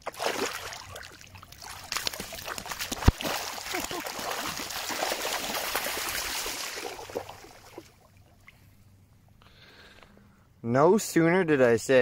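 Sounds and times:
water trickling and splashing: 0:00.0 - 0:09.0.

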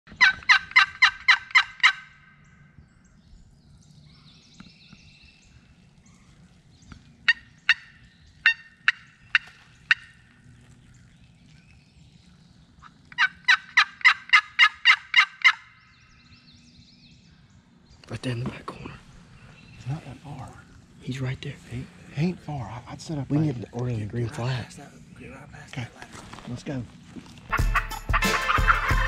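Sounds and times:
turkey clucks: 0:00.1 - 0:02.3, 0:07.0 - 0:10.8, 0:12.8 - 0:15.8, 0:27.5 - 0:29.0
turkey yelping: 0:00.1 - 0:02.3, 0:07.2 - 0:10.5, 0:12.8 - 0:15.9, 0:27.5 - 0:29.0.

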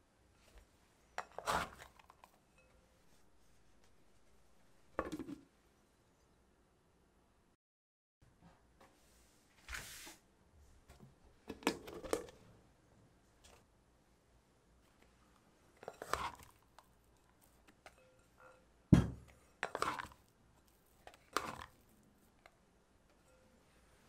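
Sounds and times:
rustling and scraping: 0:08.8 - 0:10.2.

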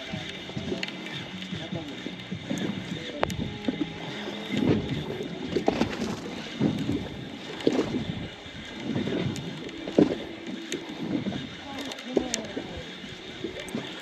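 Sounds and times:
water lapping against boat: 0:00.0 - 0:14.0
wind on microphone: 0:01.7 - 0:11.6.

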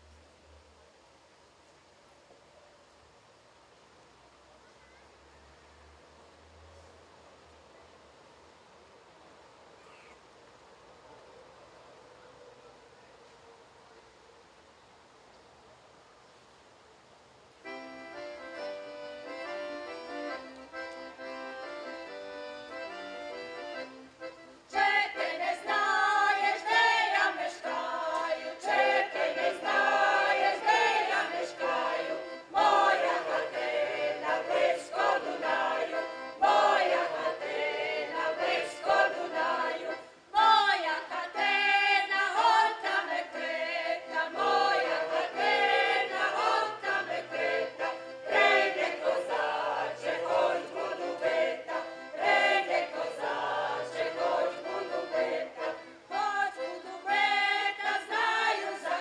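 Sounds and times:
accordion playing: 0:17.6 - 0:59.0
group singing folk song: 0:17.6 - 0:59.0.

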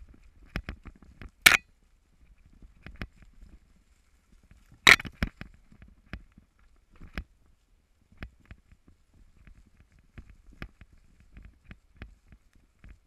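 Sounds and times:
bike clicks and knocks: 0:04.9 - 0:05.4.

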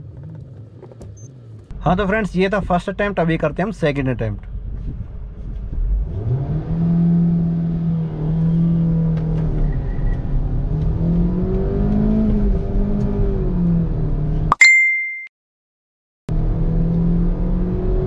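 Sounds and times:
car engine accelerating: 0:04.4 - 0:14.5, 0:16.3 - 0:18.0.

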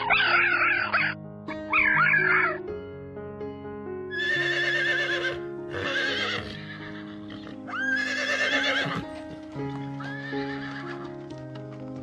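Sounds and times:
horses whinnying: 0:00.0 - 0:02.6, 0:04.1 - 0:09.2, 0:09.8 - 0:11.2
soft background music: 0:00.0 - 0:12.0.

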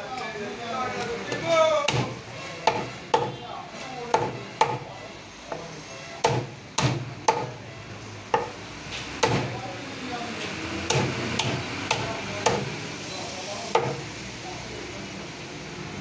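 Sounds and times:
knife chopping on wooden block: 0:01.3 - 0:03.4, 0:04.1 - 0:04.8, 0:06.2 - 0:07.6, 0:08.3 - 0:08.6, 0:09.2 - 0:09.6, 0:10.9 - 0:12.8, 0:13.8 - 0:14.0.

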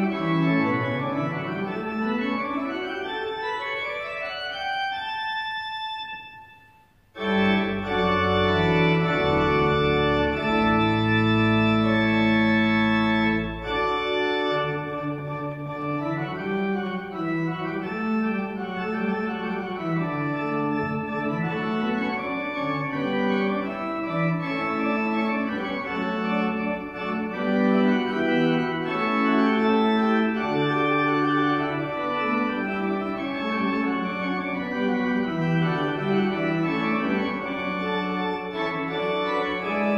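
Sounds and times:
pipe organ playing: 0:00.0 - 0:39.9.

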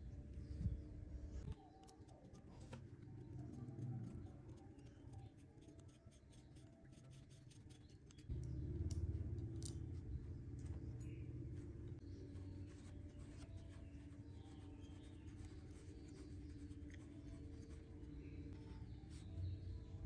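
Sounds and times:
low hum: 0:00.0 - 0:01.7, 0:08.3 - 0:20.0.

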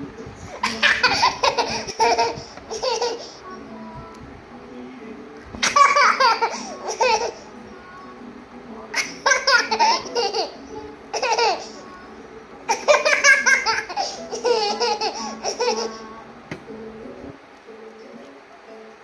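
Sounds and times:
toddler laughing: 0:00.5 - 0:03.4, 0:05.6 - 0:07.5, 0:09.0 - 0:11.8, 0:12.7 - 0:16.2.

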